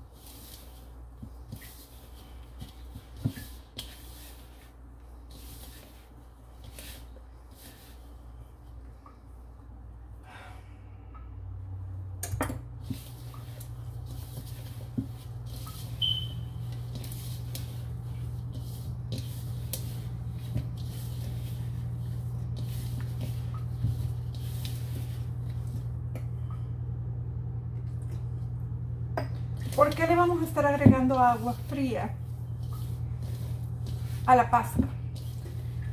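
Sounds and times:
hands kneading paste in bowl: 0:00.0 - 0:09.7, 0:12.8 - 0:26.4, 0:29.4 - 0:35.9
low steady hum: 0:00.0 - 0:35.9.

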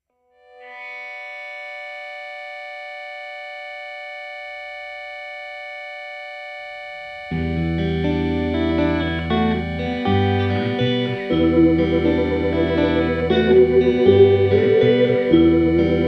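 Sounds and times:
held synth chord: 0:07.0 - 0:16.0
band with electric guitar: 0:07.4 - 0:16.0.

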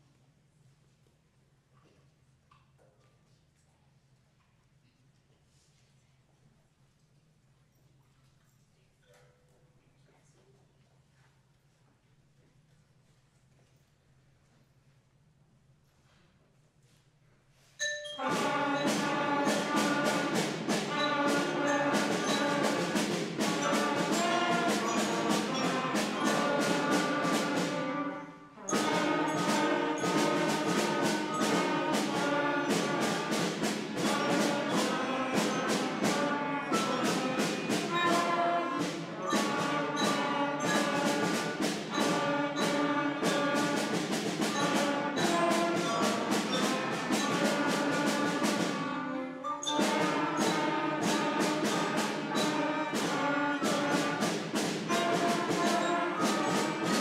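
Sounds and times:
school band playing: 0:17.8 - 0:57.0.

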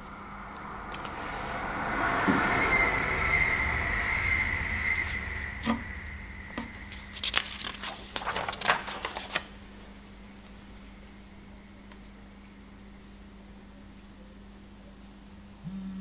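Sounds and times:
low rumble: 0:00.0 - 0:08.5
high whine: 0:00.0 - 0:08.8, 0:15.5 - 0:16.0
paper rustling: 0:06.6 - 0:10.2.

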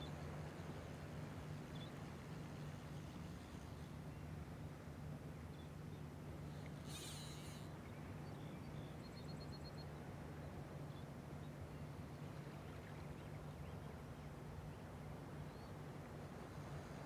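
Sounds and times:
short hiss: 0:06.8 - 0:07.7.

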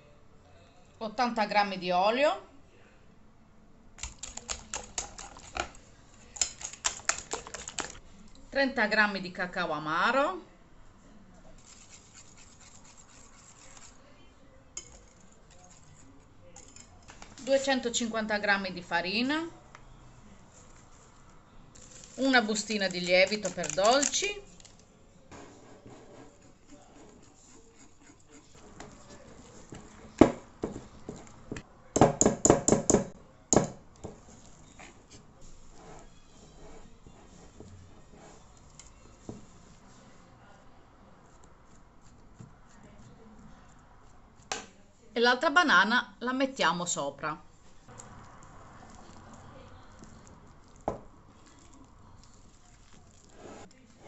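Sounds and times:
whisk clacking against bowl: 0:04.0 - 0:08.0, 0:11.6 - 0:14.0, 0:22.2 - 0:24.3
whisk scraping batter in bowl: 0:04.0 - 0:08.0, 0:11.6 - 0:14.2, 0:14.8 - 0:17.9, 0:20.5 - 0:24.8, 0:25.4 - 0:31.6, 0:34.0 - 0:40.5, 0:41.1 - 0:44.5, 0:47.6 - 0:54.0.

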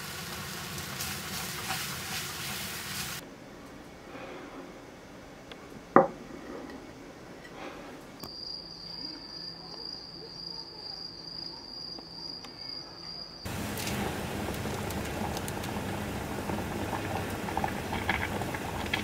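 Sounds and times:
plate knocking on wooden table: 0:06.0 - 0:06.2
insect high-pitched call: 0:08.2 - 0:13.5.

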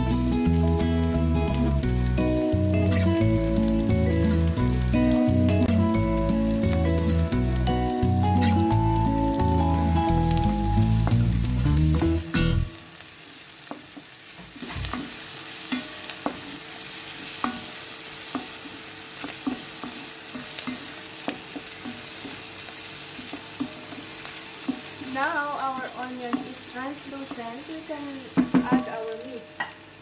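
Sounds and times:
background music: 0:00.0 - 0:12.8
onions sizzling in oil: 0:00.0 - 0:30.0
wooden spoon knocking pot: 0:28.3 - 0:29.0.

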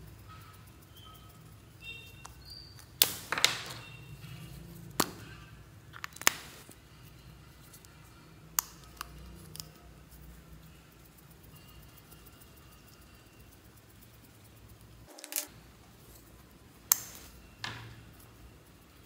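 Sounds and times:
plastic caps clicking and snapping: 0:02.2 - 0:03.9, 0:04.9 - 0:05.3, 0:05.9 - 0:06.8, 0:08.5 - 0:09.8, 0:16.8 - 0:18.0.

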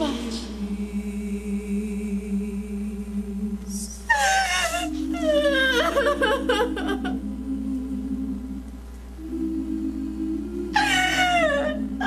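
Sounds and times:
soft sustained music chords: 0:00.0 - 0:12.0
woman sobbing: 0:04.1 - 0:07.2, 0:10.8 - 0:12.0.

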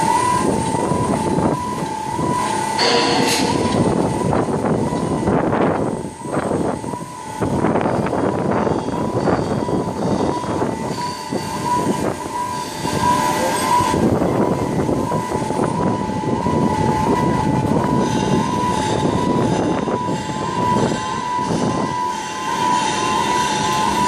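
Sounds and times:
machinery rumble: 0:00.0 - 0:24.0
warbling warning siren: 0:00.0 - 0:24.0.

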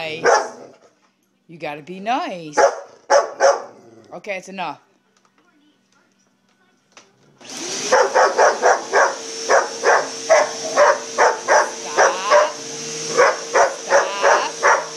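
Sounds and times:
dog barking: 0:00.2 - 0:00.8, 0:02.6 - 0:03.8, 0:07.8 - 0:14.9
vacuum cleaner running: 0:07.4 - 0:14.9.

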